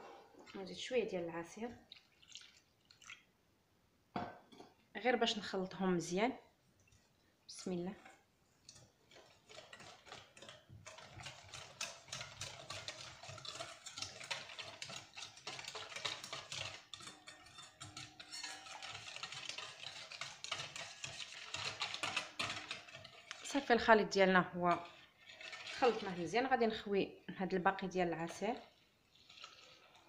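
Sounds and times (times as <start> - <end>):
whisk beating in a metal bowl: 8.7 - 23.8, 24.4 - 26.6.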